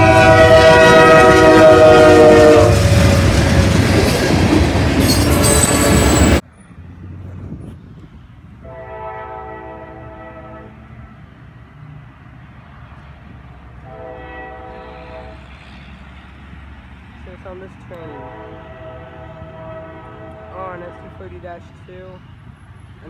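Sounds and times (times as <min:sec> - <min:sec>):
train air horn chord: 0:00.0 - 0:03.2, 0:08.6 - 0:10.9, 0:13.8 - 0:15.5, 0:18.0 - 0:21.3
heavy rumble of passing train: 0:00.0 - 0:23.0.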